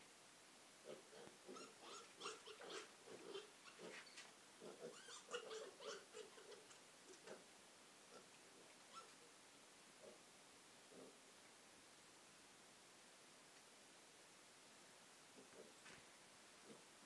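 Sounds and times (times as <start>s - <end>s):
piglets grunting and squealing: 0.8s - 4.0s, 4.6s - 7.5s.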